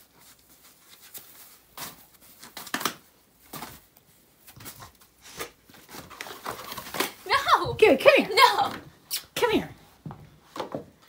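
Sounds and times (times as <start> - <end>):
tissue paper rustling: 0.0 - 8.5.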